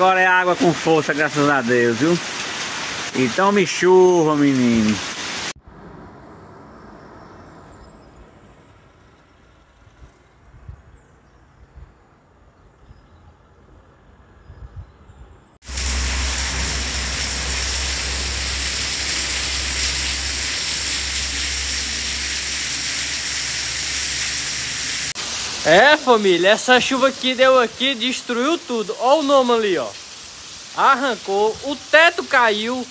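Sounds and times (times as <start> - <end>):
heavy rain: 0.0 - 5.6, 15.6 - 32.9
wind rumbling on microphone: 5.7 - 22.1.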